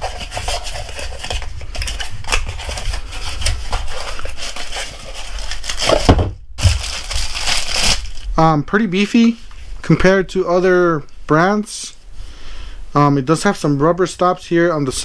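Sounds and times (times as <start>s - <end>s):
plastic-wrapped battery rustling: 0.0s - 9.3s.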